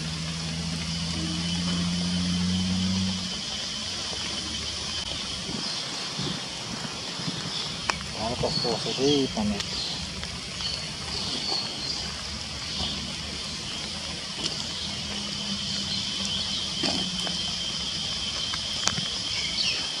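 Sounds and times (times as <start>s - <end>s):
thin high whine: 0.0s - 4.6s
floodwater rushing: 0.0s - 20.0s
faint clicks: 7.3s - 8.2s.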